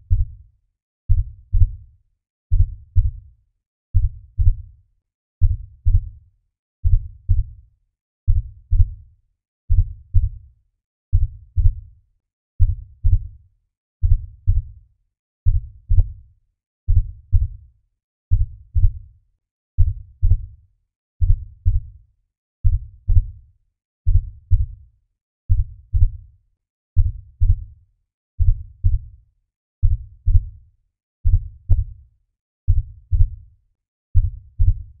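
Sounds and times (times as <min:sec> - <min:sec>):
heartbeat thumps: 0:34.2 - 0:34.9.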